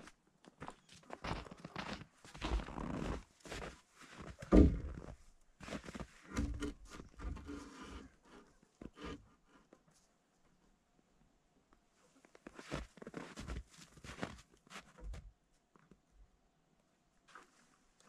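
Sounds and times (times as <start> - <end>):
footsteps crunching in snow: 0.0 - 6.1, 12.4 - 14.9.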